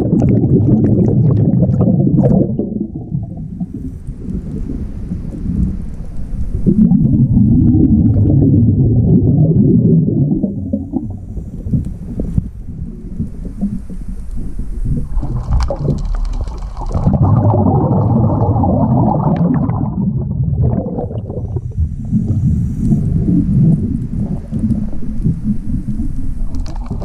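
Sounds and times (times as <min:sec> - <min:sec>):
exhaled bubbles rumbling: 0:00.0 - 0:27.0
regulator hiss on inhale: 0:21.8 - 0:26.5.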